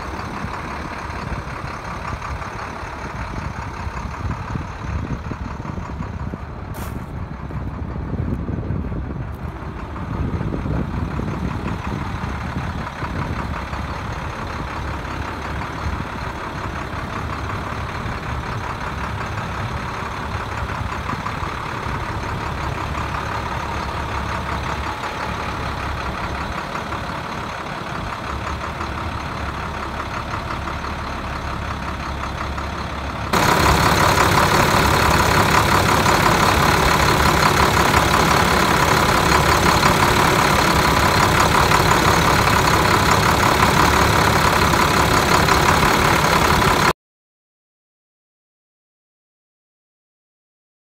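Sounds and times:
diesel truck engine idling: 0:00.0 - 0:47.0.

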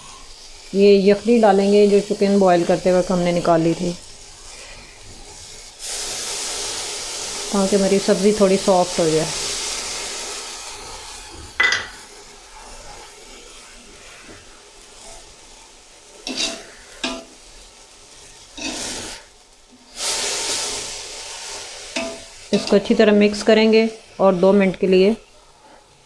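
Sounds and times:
vegetables sizzling in a pot: 0:00.0 - 0:26.0
metal spoon scraping a pot: 0:16.2 - 0:17.3, 0:18.6 - 0:19.2.

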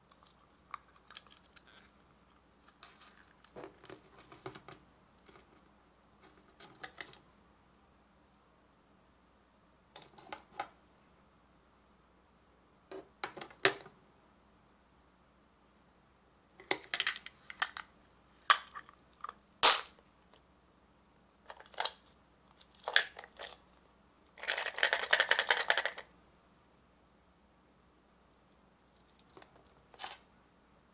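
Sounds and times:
plastic capsules clicking: 0:24.4 - 0:26.1.

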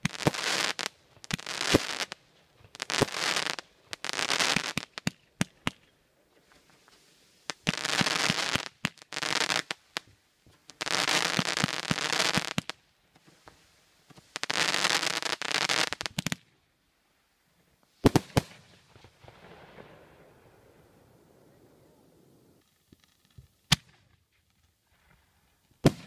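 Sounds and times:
fireworks crackling: 0:00.0 - 0:16.6, 0:17.9 - 0:26.0
fireworks bangs: 0:18.0 - 0:22.6, 0:25.8 - 0:26.0.

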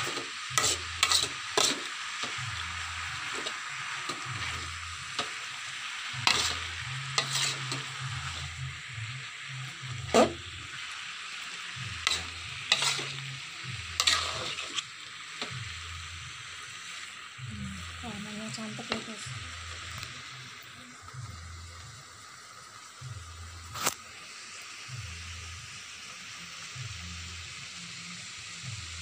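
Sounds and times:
metal spatula scraping wok: 0:00.0 - 0:08.9, 0:09.7 - 0:10.8, 0:11.7 - 0:15.8
food sizzling in a wok: 0:00.0 - 0:29.0.

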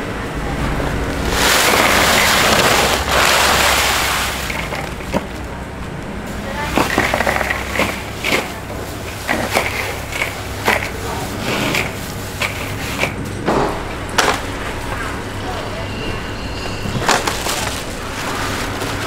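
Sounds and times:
ice crunching and scraping: 0:01.2 - 0:05.4, 0:06.5 - 0:13.2, 0:16.8 - 0:19.0
ice pouring into a cooler: 0:01.2 - 0:05.4, 0:06.5 - 0:13.2, 0:16.9 - 0:19.0.

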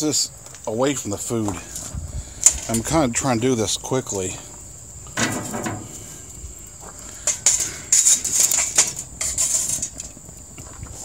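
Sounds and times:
metal clattering on grill grates: 0:05.2 - 0:06.2, 0:07.2 - 0:10.2.

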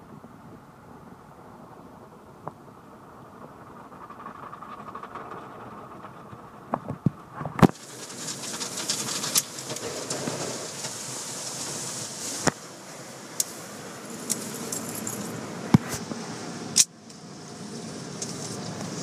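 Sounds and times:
car wash machinery rumbling: 0:02.1 - 0:19.0
water spray hissing: 0:07.7 - 0:19.0.

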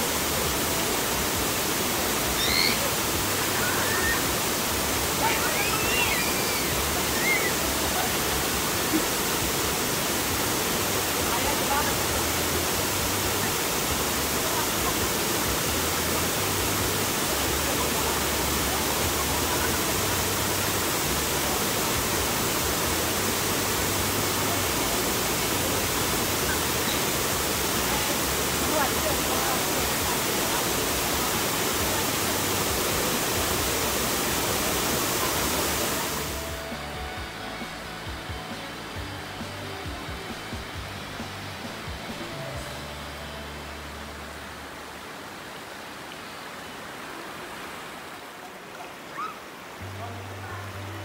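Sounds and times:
waterfall rushing into pool: 0:00.0 - 0:51.0
faint high calls: 0:02.3 - 0:04.4, 0:05.2 - 0:07.8, 0:49.1 - 0:49.5.

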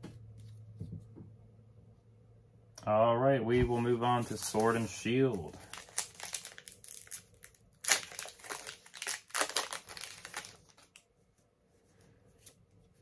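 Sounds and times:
foil wrapper crinkling: 0:04.0 - 0:11.0.

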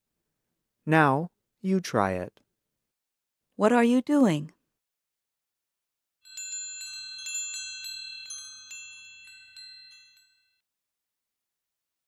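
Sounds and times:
wind chimes ringing: 0:06.2 - 0:10.6.

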